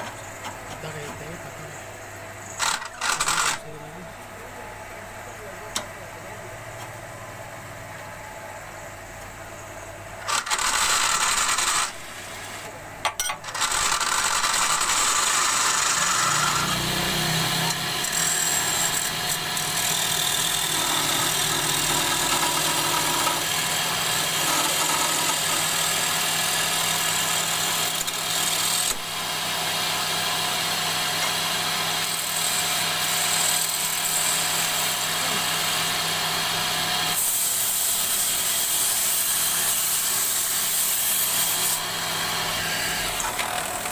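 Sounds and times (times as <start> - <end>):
turning tool cutting wood: 2.5 - 3.7, 10.2 - 12.4, 13.4 - 43.9
wood lathe motor running: 2.5 - 3.8, 10.2 - 12.5, 13.5 - 43.9.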